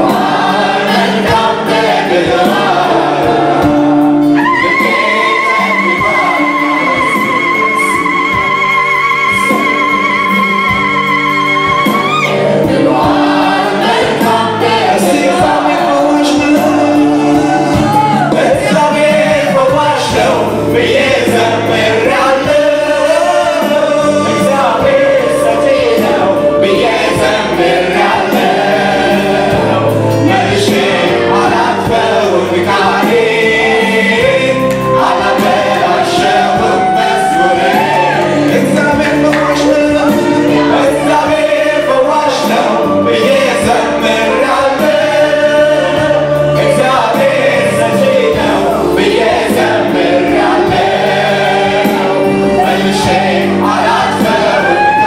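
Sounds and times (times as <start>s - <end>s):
gospel choir singing: 0.0s - 55.0s
instrumental accompaniment: 0.0s - 55.0s
lead singer: 0.0s - 55.0s.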